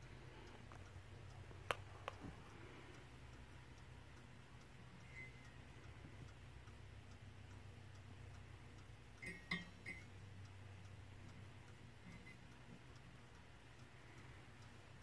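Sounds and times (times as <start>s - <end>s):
clock ticking: 0.0s - 15.0s
low steady hum: 0.0s - 15.0s
small sharp metallic clinks: 9.2s - 10.1s.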